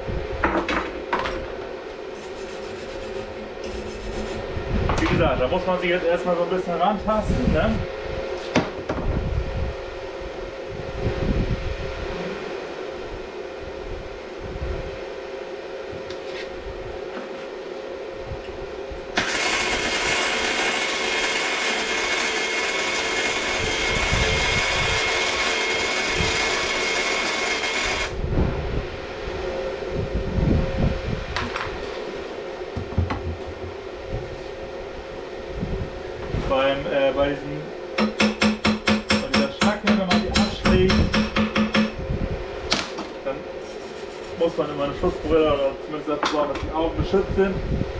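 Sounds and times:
welding hiss with high whine: 19.0 - 28.3.

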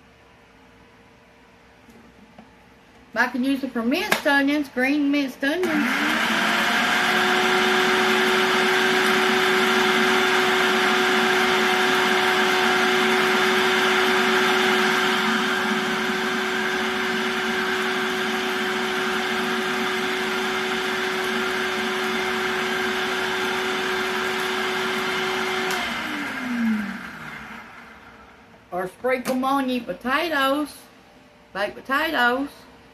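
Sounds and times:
food processor motor running: 5.6 - 28.3.

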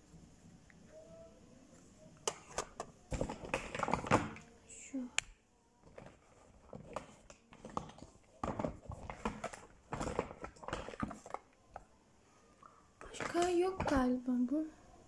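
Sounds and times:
makeup cases knocking together: 3.1 - 4.4, 5.9 - 11.4, 13.0 - 14.1.

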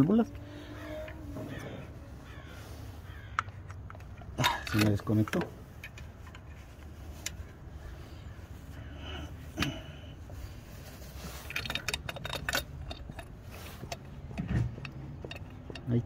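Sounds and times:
low steady hum: 0.0 - 16.0
hand vacuum pump clicks and rattles: 3.3 - 7.5, 11.1 - 16.0.

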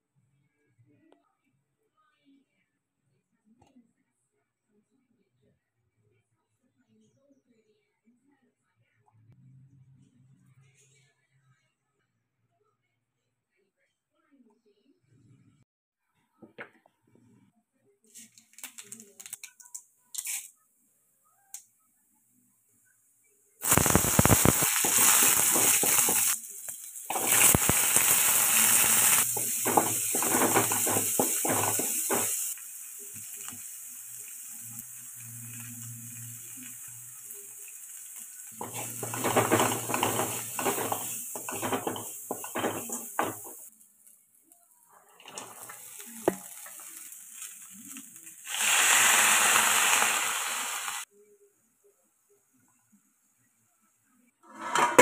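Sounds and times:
hot oil sizzling: 20.2 - 20.5, 23.6 - 44.3, 45.1 - 51.1
stirring scrapes and taps: 29.2 - 32.4, 38.6 - 43.7.

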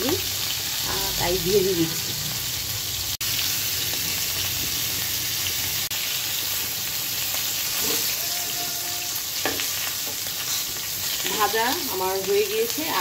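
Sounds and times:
meat sizzling in hot oil: 0.0 - 13.0
metal spatula turning food: 7.5 - 11.8.

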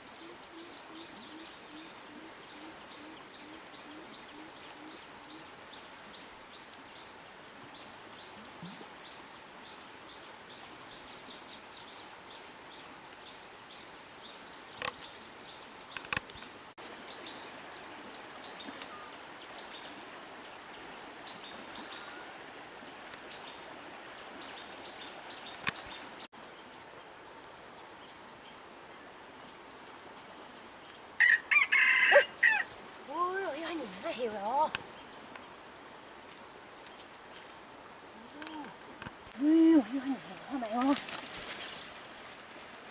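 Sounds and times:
twig snaps: 38.4 - 39.2, 40.8 - 41.9.

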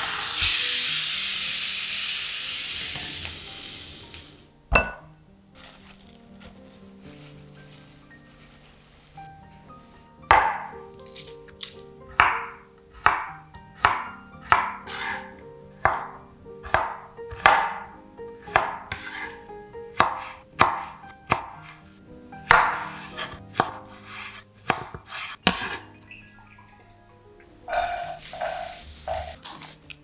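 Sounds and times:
background music: 0.1 - 30.0
knife chopping on wooden board: 10.3 - 10.7, 12.2 - 21.8, 22.5 - 25.8.

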